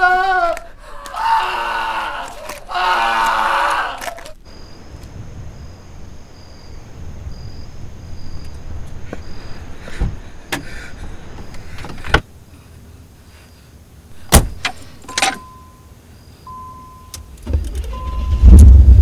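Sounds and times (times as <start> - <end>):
crickets chirping: 0.0 - 18.6
car warning chime beeping: 15.0 - 18.5.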